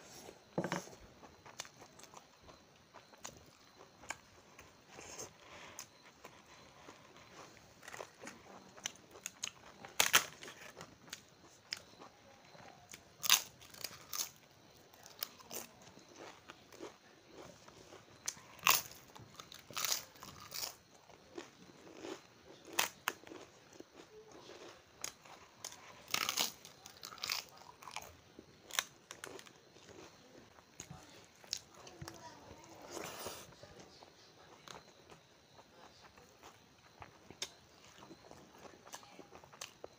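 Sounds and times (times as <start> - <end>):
crunching and chewing crisp food: 0.0 - 39.9.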